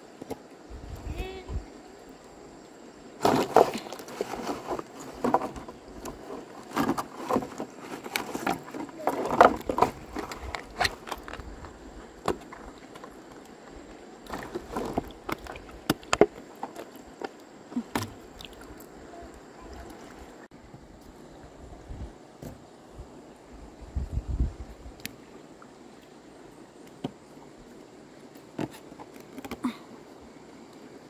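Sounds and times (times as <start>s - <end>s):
splashes and knocks in water: 3.2s - 11.4s, 14.2s - 18.9s.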